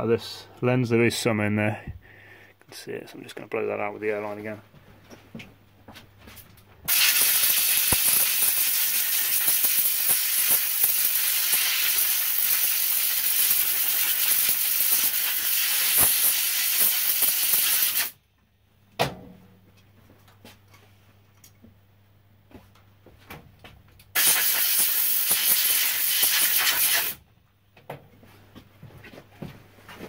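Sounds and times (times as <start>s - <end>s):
air blow gun hissing: 6.9s - 18.2s, 24.2s - 27.2s.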